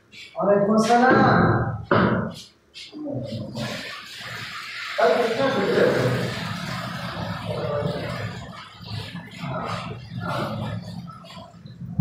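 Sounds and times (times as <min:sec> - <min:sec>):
tap water running into sink: 0:03.4 - 0:11.5.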